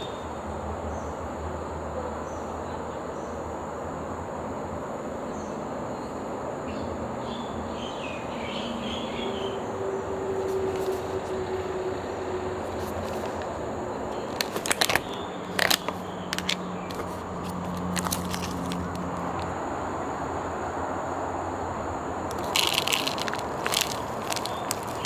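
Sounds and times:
traffic rumble: 0:00.0 - 0:25.0
short sharp crackles: 0:22.3 - 0:25.0.

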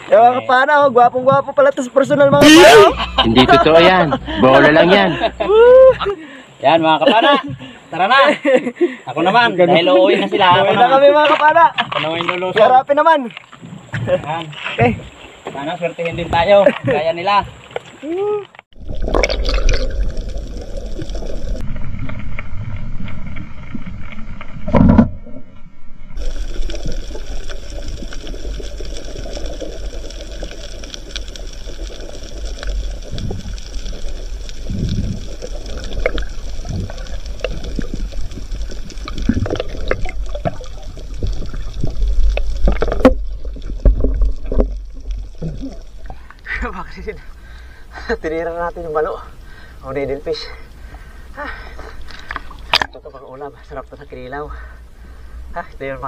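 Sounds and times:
underwater water wash: 0:18.7 - 0:56.0.

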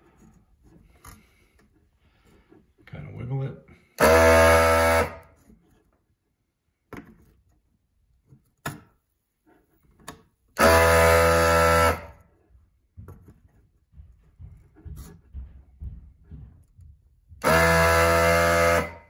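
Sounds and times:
desoldering pump running: 0:04.0 - 0:05.3, 0:10.6 - 0:12.2, 0:17.3 - 0:19.0.

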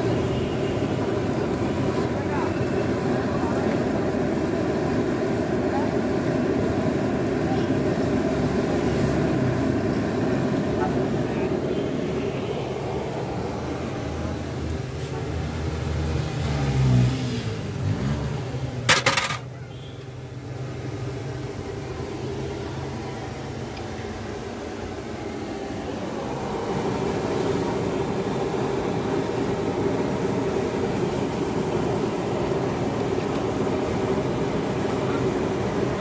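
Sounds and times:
street noise: 0:00.0 - 0:36.0
metal spatula clattering on griddle: 0:18.9 - 0:19.5.

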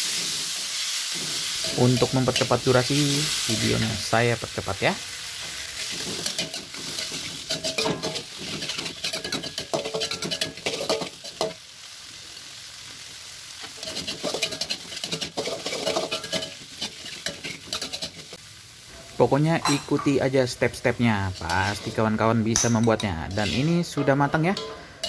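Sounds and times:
metal spatula scraping wok: 0:00.0 - 0:04.1, 0:05.3 - 0:11.6, 0:13.6 - 0:20.2, 0:21.0 - 0:25.0
oil sizzling: 0:00.0 - 0:25.0.

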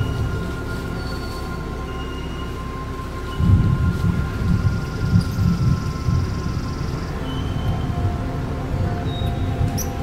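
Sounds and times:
low pulsing bass: 0:00.0 - 0:10.0.

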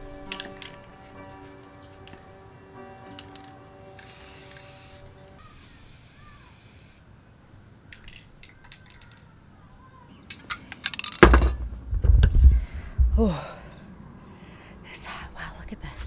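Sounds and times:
spray paint can hissing: 0:03.3 - 0:07.0
clicks and rattles: 0:07.9 - 0:09.3, 0:10.3 - 0:12.4
microphone handling rumble: 0:11.2 - 0:13.4.

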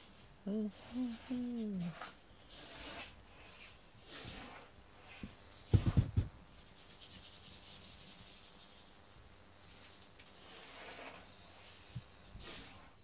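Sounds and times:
camera rubbing and rustling: 0:00.8 - 0:09.1.

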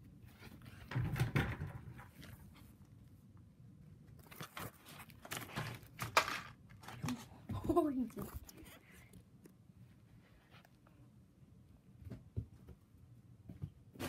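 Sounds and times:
objects rustling and knocking: 0:00.2 - 0:02.8, 0:04.2 - 0:08.8.

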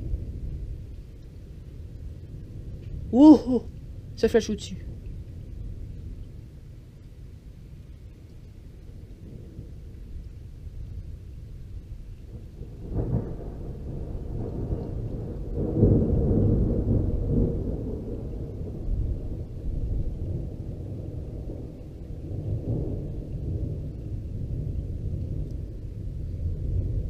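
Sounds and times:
deep thunder rumble: 0:00.0 - 0:27.0
thunder crack: 0:12.3 - 0:23.9.

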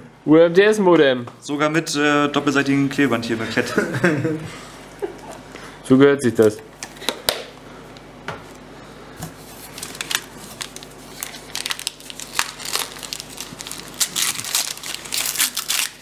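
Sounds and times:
gift wrapping crinkling and tearing: 0:09.6 - 0:16.0.

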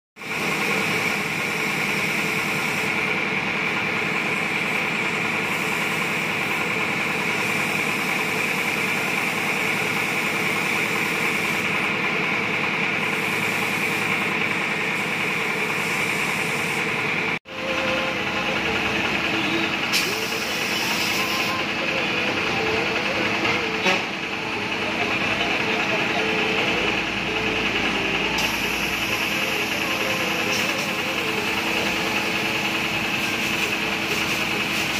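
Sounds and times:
hiss of air: 0:00.2 - 0:03.1, 0:04.1 - 0:11.8, 0:13.0 - 0:17.0, 0:19.8 - 0:21.6, 0:28.4 - 0:34.9
compressed air machine hum: 0:00.2 - 0:34.9.

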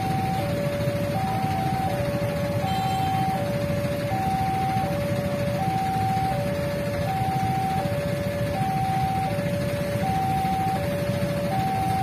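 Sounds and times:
level-crossing two-note alarm: 0:00.0 - 0:12.0
low rumble of traffic: 0:00.0 - 0:12.0.

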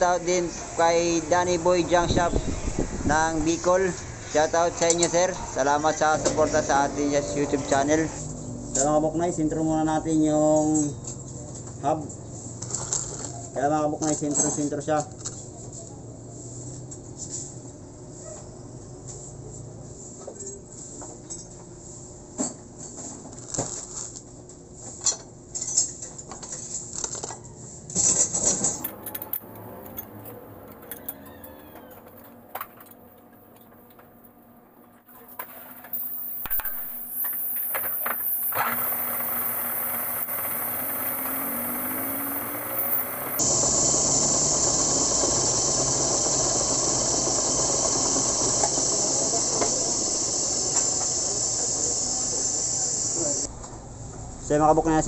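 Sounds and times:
workshop machine hissing and humming: 0:00.0 - 0:09.5, 0:27.7 - 0:32.8, 0:35.0 - 0:53.5
faint shop background: 0:00.0 - 0:55.0.

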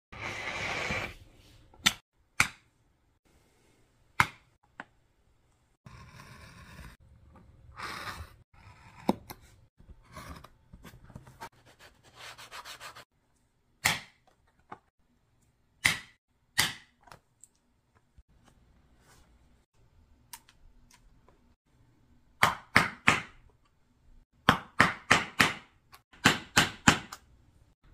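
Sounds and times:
sandpaper rubbing leather: 0:11.5 - 0:13.1.

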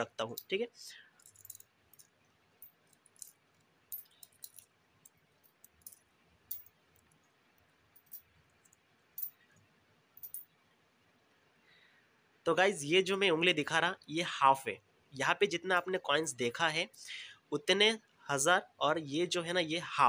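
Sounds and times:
coins clicking onto pile: 0:01.2 - 0:07.2, 0:10.2 - 0:10.4.

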